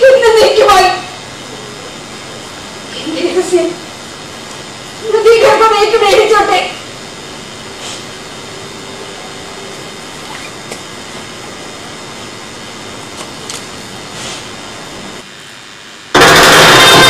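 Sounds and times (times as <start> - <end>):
hall background hiss: 0.0 - 16.1.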